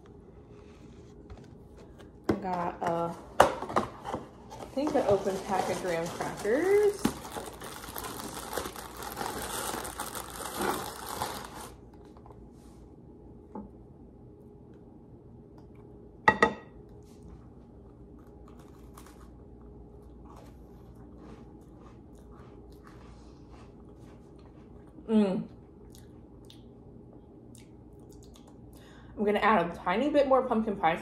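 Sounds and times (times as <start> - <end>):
plastic wrapper crinkling: 4.6 - 12.1
faint chewing: 16.9 - 29.0.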